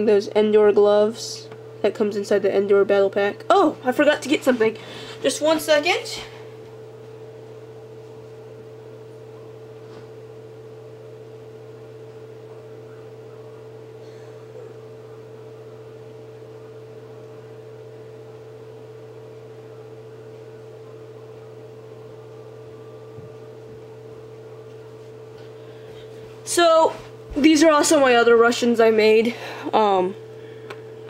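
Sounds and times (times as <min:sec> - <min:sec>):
low electrical hum: 0:00.0 - 0:31.0
higher steady tone: 0:10.6 - 0:31.0.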